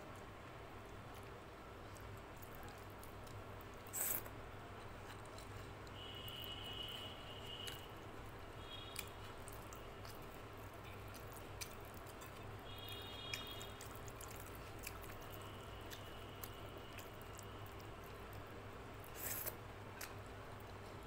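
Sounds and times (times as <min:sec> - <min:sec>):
chewing: 0:01.9 - 0:06.4, 0:08.9 - 0:18.4.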